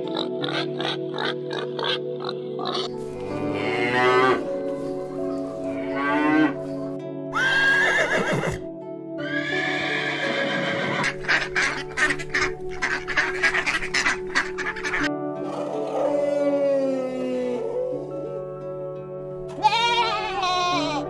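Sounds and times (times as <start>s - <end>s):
background music: 0.0s - 21.0s
cow mooing: 3.3s - 4.5s
horse whinnying: 7.3s - 8.6s, 9.2s - 11.5s.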